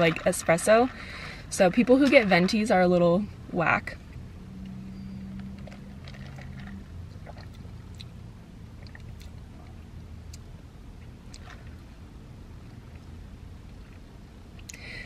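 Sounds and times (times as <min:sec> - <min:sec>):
low car cabin hum: 0:00.0 - 0:15.0
sipping and mouth sounds: 0:06.0 - 0:10.5.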